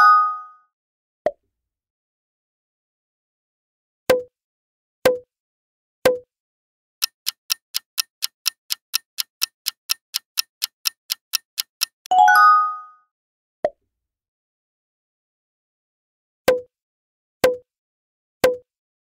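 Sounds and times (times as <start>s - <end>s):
clock ticking fast: 7.0s - 12.1s.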